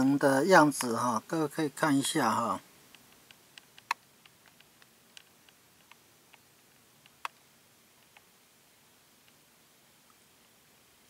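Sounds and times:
faint small clicks and ticks: 2.8 - 8.3, 9.2 - 9.4.

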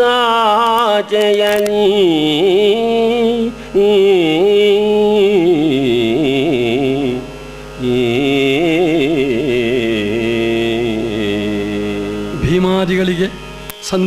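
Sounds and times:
man singing melismatic verse: 0.0 - 14.0
steady drone: 0.0 - 14.0.

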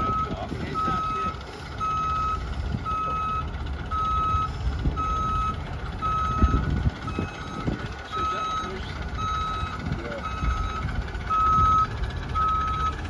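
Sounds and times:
low rumble: 0.0 - 13.0
reversing alarm beeping: 0.0 - 13.0.

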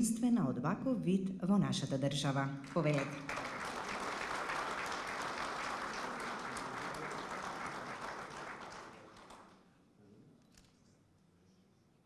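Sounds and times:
audience applauding: 2.7 - 9.6.

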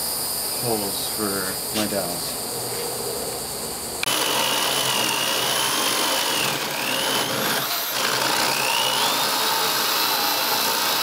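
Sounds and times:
electric drill boring wood: 4.0 - 11.0.

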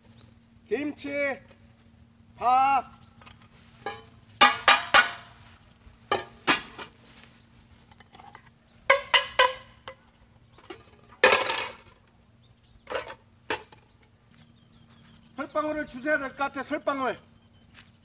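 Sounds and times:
metal pot and lid clanking: 3.8 - 5.2, 6.1 - 6.9, 8.9 - 10.0, 10.6 - 11.9.

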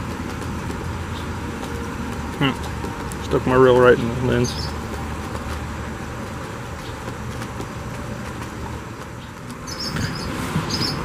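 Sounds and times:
high bird chirps: 4.0 - 4.8, 9.2 - 11.0.

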